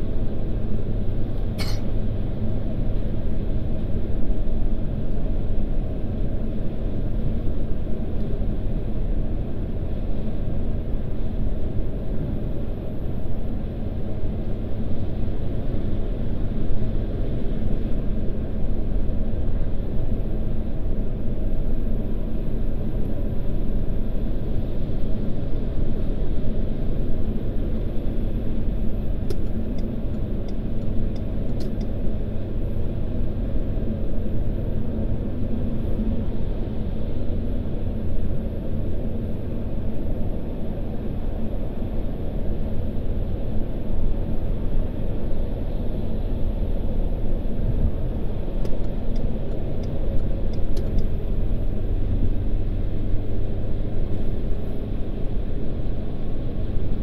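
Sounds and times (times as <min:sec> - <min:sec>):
car cabin road and engine rumble: 0:00.0 - 0:57.0
faint light ticks: 0:29.3 - 0:31.9.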